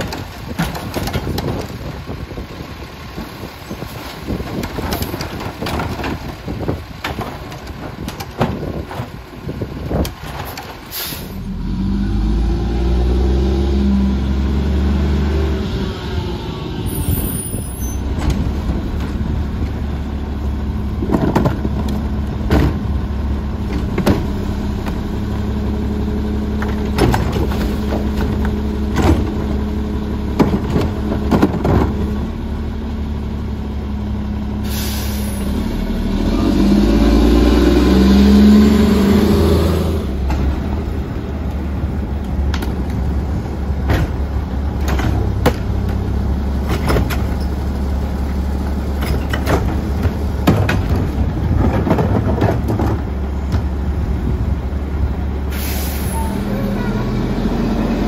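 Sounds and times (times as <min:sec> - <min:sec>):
engine revving with rising whine: 0:11.5 - 0:17.1, 0:35.4 - 0:40.2
plastic cart knocking and banging: 0:49.0 - 0:53.6
hydraulic hiss: 0:55.5 - 0:56.2.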